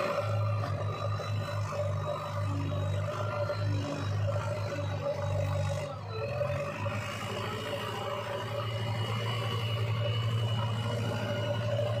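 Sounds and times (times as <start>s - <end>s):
diesel engine pulsing hum: 0.0s - 12.0s.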